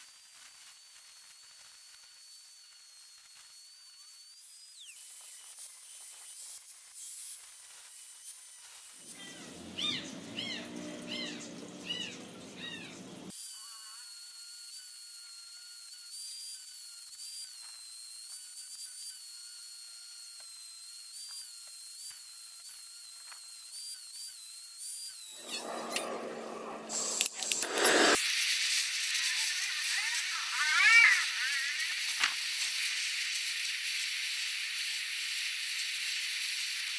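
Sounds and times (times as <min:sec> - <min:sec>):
angle grinder grinding steel: 0:07.7 - 0:13.3, 0:25.2 - 0:36.9.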